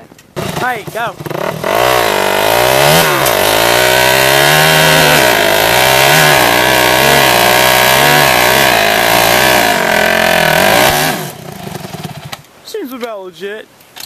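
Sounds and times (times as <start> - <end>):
dirt bike engine revving: 0.0 - 12.4
tyre spraying dirt: 0.0 - 12.9.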